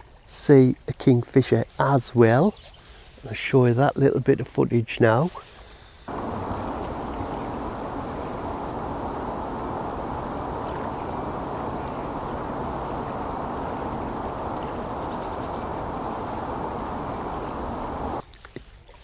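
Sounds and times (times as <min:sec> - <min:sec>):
kingfisher piping calls: 0:06.1 - 0:18.2
steady rushing background: 0:06.1 - 0:18.2.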